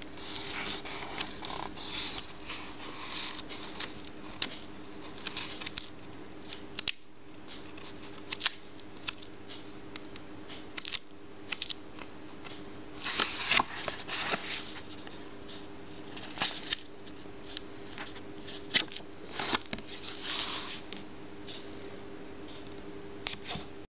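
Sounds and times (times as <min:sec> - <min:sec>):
faint steady hum: 0:00.0 - 0:23.9
paper pages rustling and flicking: 0:00.2 - 0:06.0, 0:13.0 - 0:15.2, 0:16.0 - 0:17.2, 0:17.9 - 0:21.0.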